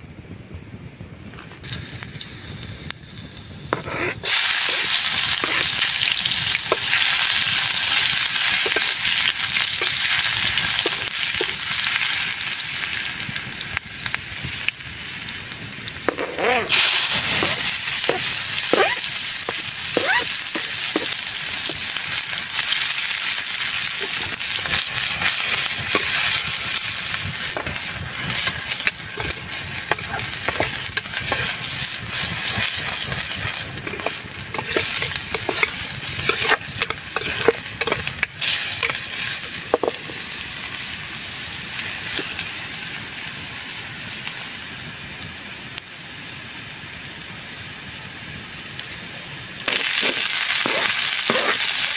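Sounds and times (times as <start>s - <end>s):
onion sizzling in oil: 1.3s - 51.9s
spoon scraping a pan: 3.7s - 5.9s, 7.9s - 9.1s, 10.8s - 11.6s, 16.1s - 22.0s, 23.8s - 40.2s, 49.7s - 51.8s.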